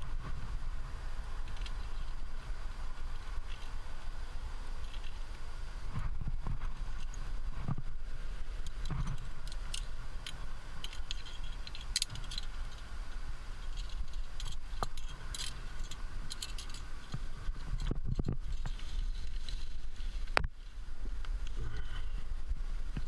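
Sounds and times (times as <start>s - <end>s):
steady low rumble: 0.0s - 23.0s
metal climbing gear clinking: 1.4s - 2.3s, 3.0s - 3.8s, 4.8s - 5.2s, 8.5s - 20.2s.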